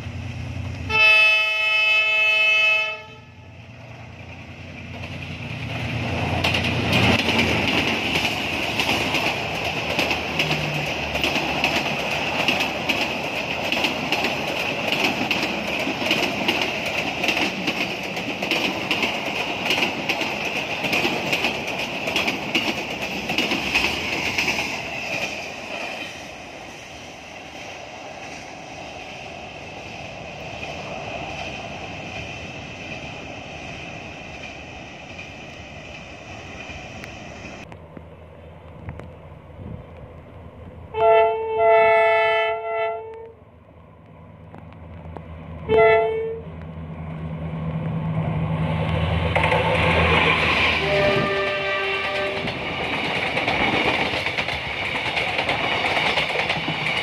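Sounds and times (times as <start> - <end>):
train rumble: 0.0 - 57.0
locomotive horn: 0.8 - 3.4, 40.9 - 43.4, 45.7 - 46.6, 50.8 - 52.5
train wheels clattering on rails: 3.9 - 37.7, 47.7 - 57.0.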